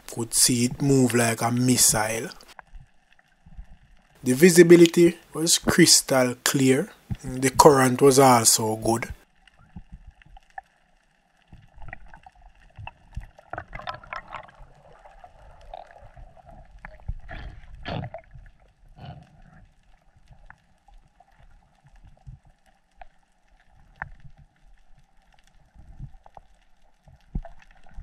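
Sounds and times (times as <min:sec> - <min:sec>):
low underwater rumble: 0:02.5 - 0:04.2, 0:09.3 - 0:28.0
faint clicks underwater: 0:11.4 - 0:28.0.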